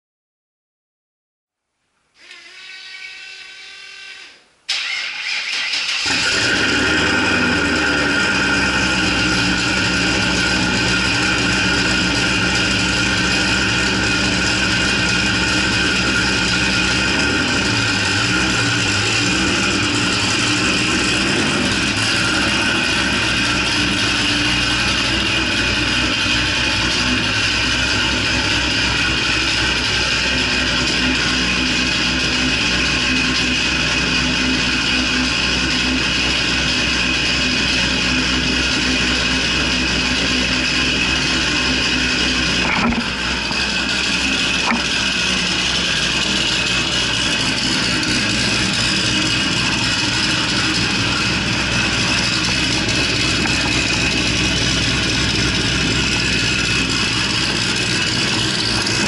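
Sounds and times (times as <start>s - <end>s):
starter motor cranking: 4.7s - 31.1s, 41.0s - 59.0s
car engine idling: 4.7s - 59.0s.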